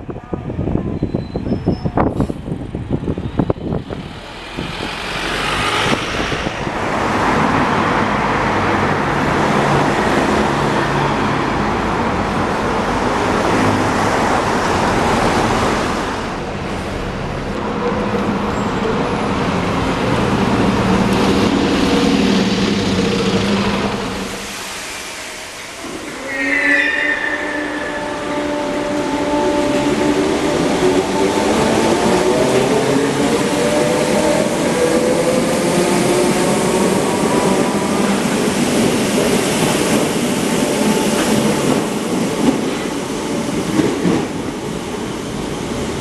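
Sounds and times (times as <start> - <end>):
wind on microphone: 0.0 - 8.1
traffic engine hum and tyre noise: 0.0 - 26.3
bus engine: 2.0 - 26.0.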